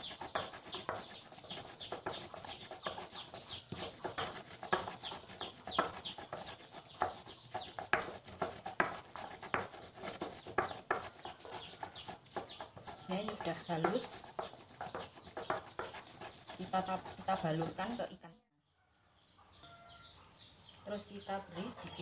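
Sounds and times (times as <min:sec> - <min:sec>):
stone pestle grinding in mortar: 0:00.0 - 0:18.1.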